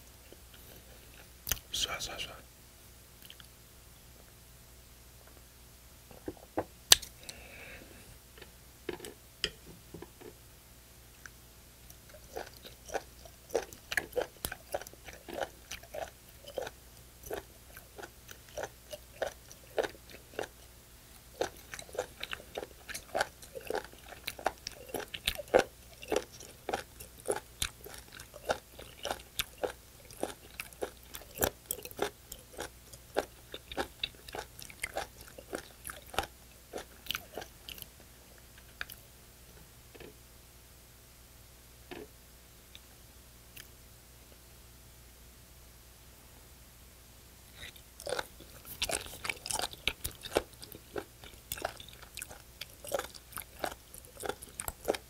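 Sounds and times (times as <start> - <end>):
chewing with sharp clicks: 3.2 - 3.5, 11.2 - 37.9, 38.6 - 39.0, 47.6 - 55.0.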